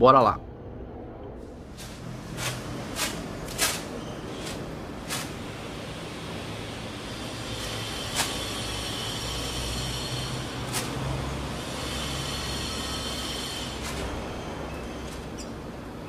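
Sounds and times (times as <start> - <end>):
low outdoor rumble: 0.0 - 11.7.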